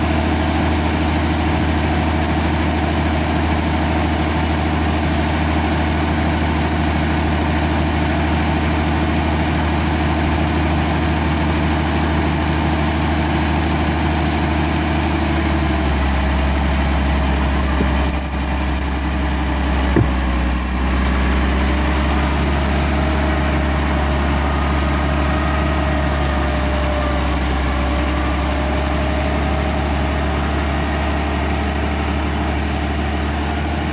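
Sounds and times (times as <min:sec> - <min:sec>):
tractor diesel engine running: 0:00.0 - 0:33.9
sharp knock: 0:20.0 - 0:20.3.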